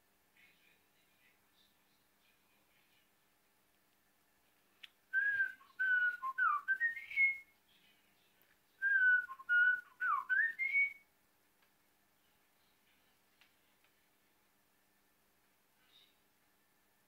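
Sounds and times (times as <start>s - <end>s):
budgerigar whistling a tune: 5.2s - 7.4s, 8.8s - 11.0s.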